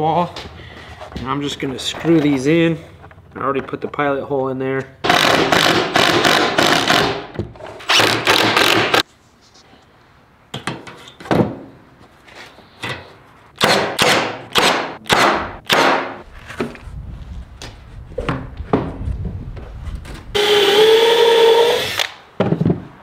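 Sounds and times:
wooden thunks and knocks: 18.2s - 19.0s, 22.4s - 22.9s.

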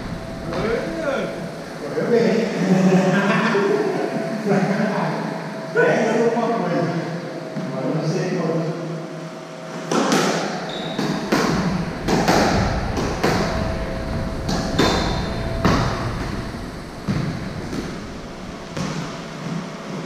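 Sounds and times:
squash ball hits echoing: 9.9s - 16.4s, 17.0s - 19.7s
shoe squeaks: 10.7s - 11.3s.

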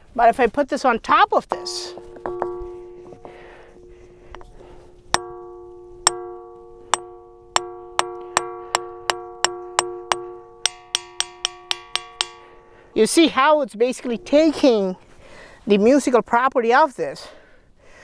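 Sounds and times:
hammer striking ringing stone: 1.5s - 13.4s, 14.0s - 14.9s.

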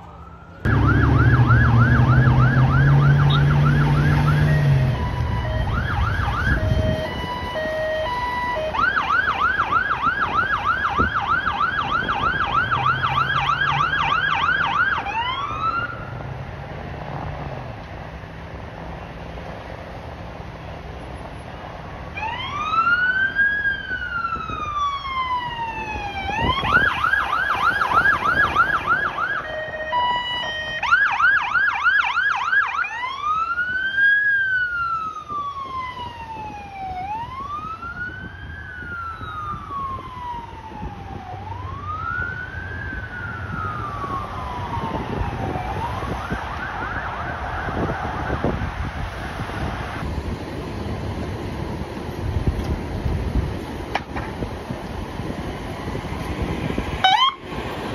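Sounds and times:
ambulance siren wailing and yelping: 0.0s - 16.1s, 22.1s - 50.0s, 56.7s - 57.6s
traffic noise: 0.0s - 57.9s.

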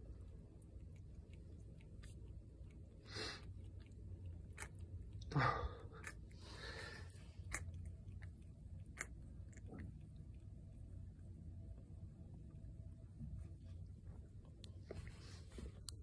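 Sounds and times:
soft rustles: 13.2s - 16.0s.

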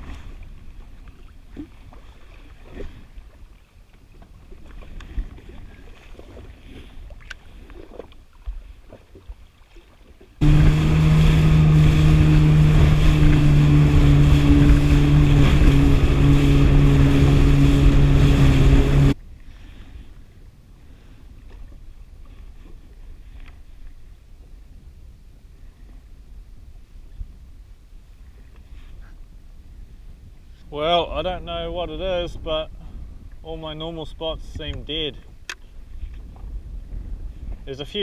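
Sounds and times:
rushing water: 0.0s - 19.2s
jet ski engine drone: 10.4s - 19.2s
wind noise: 10.4s - 38.0s.

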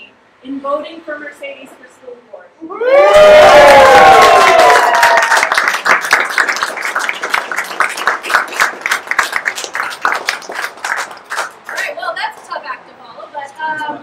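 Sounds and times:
crowd cheering: 2.7s - 11.8s
crowd applauding: 3.1s - 12.0s.

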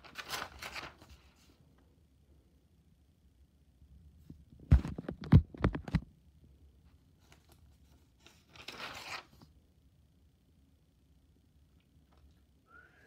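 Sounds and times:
page turning rustle: 0.0s - 1.6s, 7.2s - 9.5s
notebook thumps: 4.6s - 6.0s.

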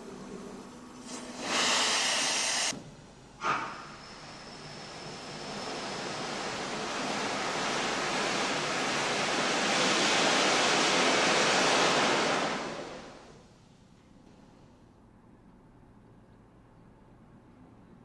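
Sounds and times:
steam locomotive hissing: 1.0s - 2.7s, 3.4s - 13.3s.

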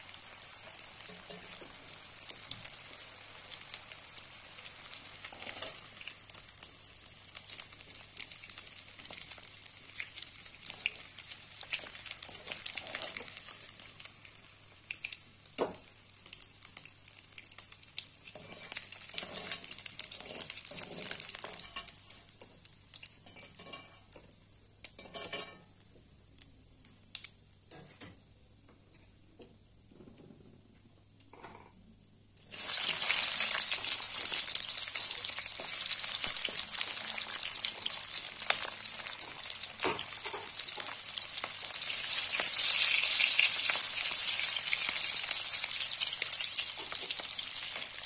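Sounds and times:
fish sizzling in hot oil: 0.0s - 24.2s, 32.4s - 48.0s.

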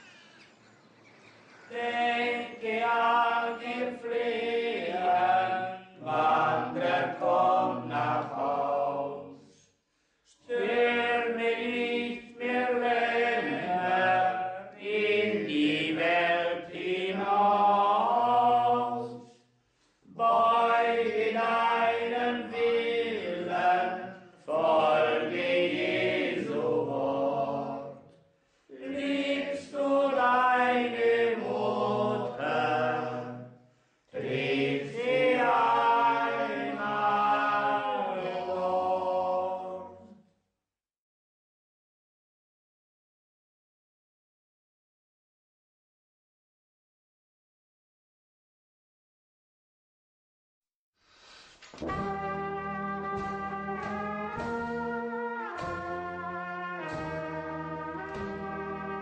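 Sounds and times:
men singing a hymn unaccompanied: 1.6s - 9.6s, 10.4s - 19.4s, 20.1s - 28.1s, 28.7s - 33.5s, 34.1s - 40.1s.

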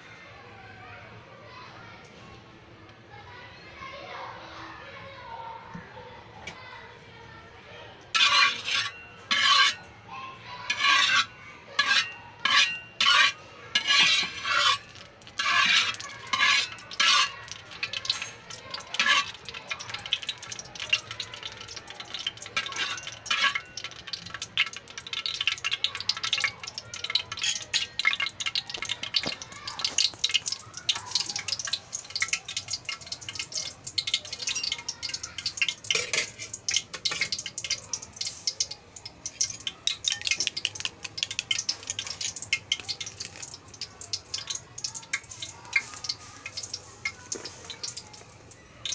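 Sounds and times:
spatula scraping a wok: 8.1s - 9.9s, 10.7s - 29.2s, 29.9s - 38.6s.

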